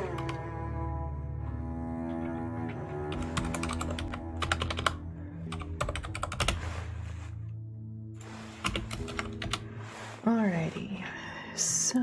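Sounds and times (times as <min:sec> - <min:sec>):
soft background music: 0:00.0 - 0:12.0
keyboard typing: 0:03.1 - 0:06.6, 0:08.6 - 0:09.6.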